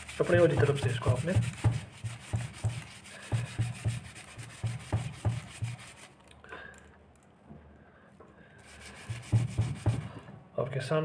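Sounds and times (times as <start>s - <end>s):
sandpaper rubbing on metal: 0.0s - 6.2s, 8.6s - 10.0s.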